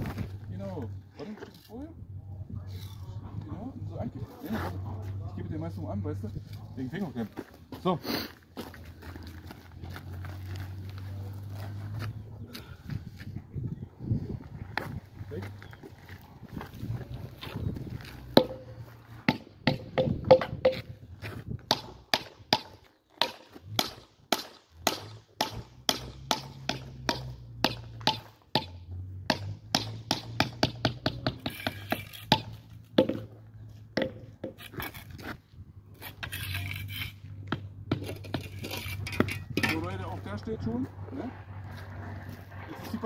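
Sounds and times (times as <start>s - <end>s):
rubber mallet knocking concrete: 18.4s - 18.7s, 19.3s - 20.9s, 21.7s - 28.7s, 29.3s - 33.3s, 34.0s - 34.7s.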